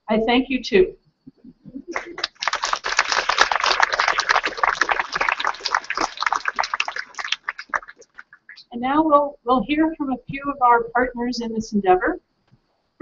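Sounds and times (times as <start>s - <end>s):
audience applause: 1.9s - 8.6s.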